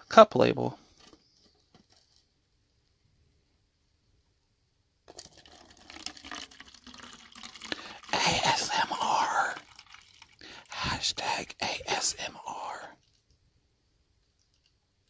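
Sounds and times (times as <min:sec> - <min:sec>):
drink pouring into plastic cup: 0:05.1 - 0:13.3.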